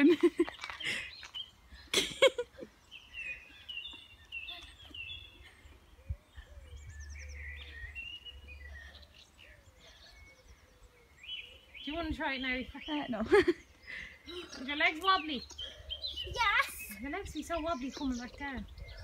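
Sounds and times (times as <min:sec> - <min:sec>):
small songbirds chirping: 0:00.1 - 0:19.0.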